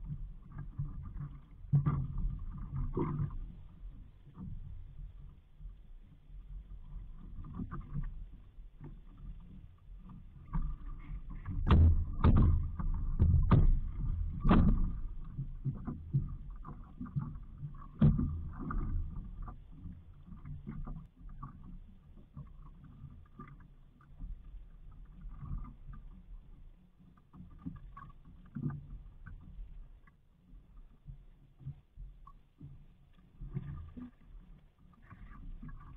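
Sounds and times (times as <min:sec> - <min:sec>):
wind rumble on microphone: 0:00.0 - 0:26.6
water sloshing against boat hull: 0:00.0 - 0:35.9
splashes and knocks: 0:10.4 - 0:19.6.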